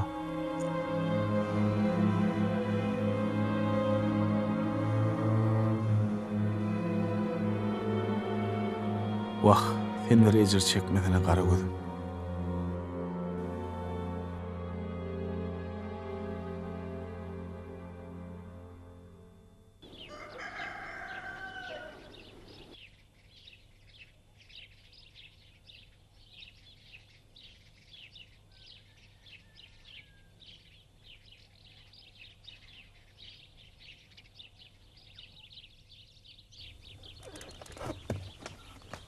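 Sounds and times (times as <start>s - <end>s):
rooster crowing: 19.8s - 22.8s, 28.5s - 30.5s
small birds chirping: 19.8s - 39.0s.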